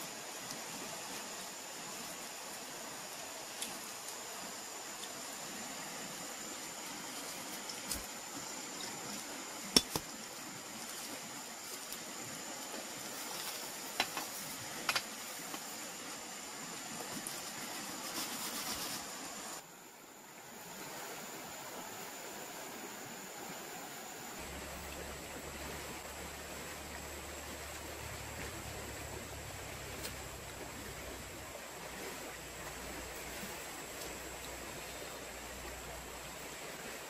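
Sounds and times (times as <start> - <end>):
river water rushing: 19.1 - 37.0.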